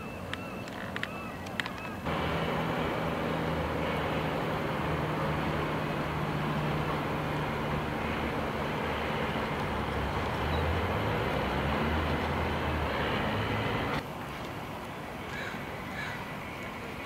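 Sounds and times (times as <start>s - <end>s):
propeller engine droning: 0.8s - 14.0s
low hum: 2.0s - 14.0s.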